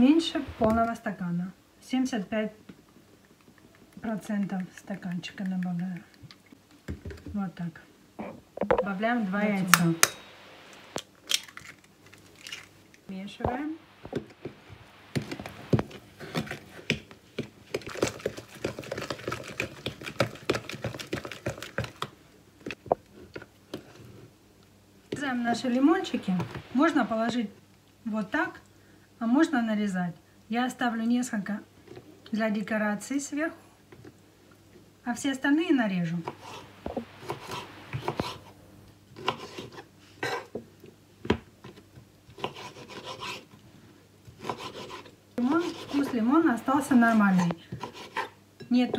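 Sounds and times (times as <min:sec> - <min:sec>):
spoon stirring batter in a jug: 0:15.2 - 0:22.1.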